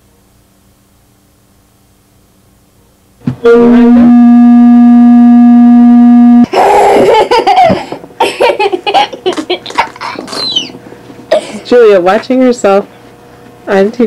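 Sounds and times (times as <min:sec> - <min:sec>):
loud steady tone: 0:03.2 - 0:06.6
girl laughing: 0:06.5 - 0:11.7.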